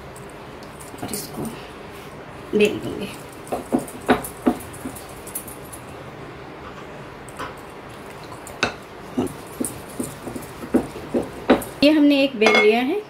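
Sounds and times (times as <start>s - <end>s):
rolling pin rolling dough: 9.2s - 11.9s.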